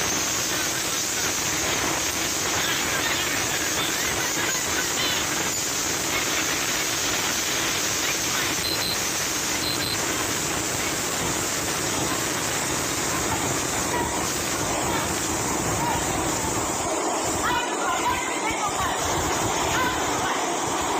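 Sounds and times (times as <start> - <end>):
short high beeps: 8.5 - 10.0
faint voices: 11.8 - 20.9.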